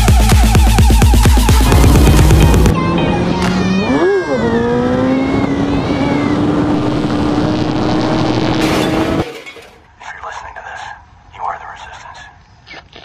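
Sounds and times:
motorcycle engine revving: 1.1s - 9.2s.

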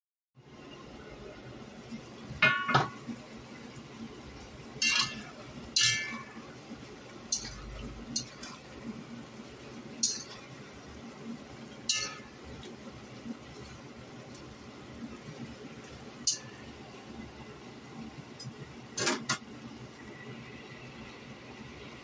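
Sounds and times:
metal spatula clinking on wok: 7.3s - 7.6s, 8.2s - 8.5s, 10.0s - 10.4s, 11.9s - 12.3s.

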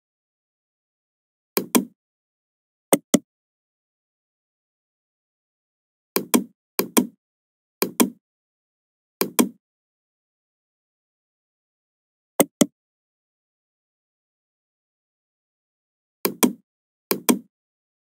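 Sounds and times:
mouse button clicks: 7.8s - 8.2s, 9.2s - 9.6s, 12.4s - 12.7s, 16.3s - 17.5s.

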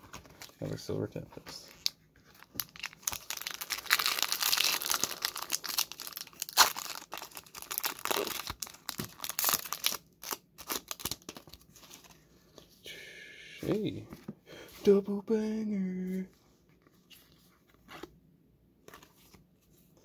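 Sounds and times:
foil wrapper tearing and crinkling: 1.8s - 12.0s.

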